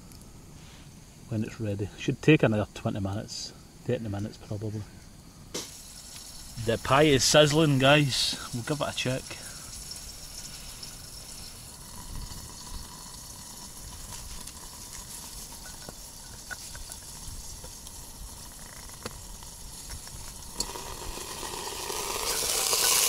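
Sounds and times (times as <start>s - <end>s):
pie sizzling in a tin: 5.5s - 23.0s
small crackles: 7.2s - 23.0s.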